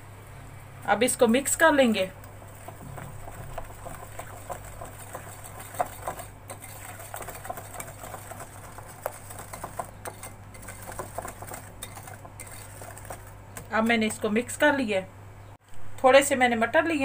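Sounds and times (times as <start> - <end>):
whisk tapping glass bowl: 2.3 - 14.2.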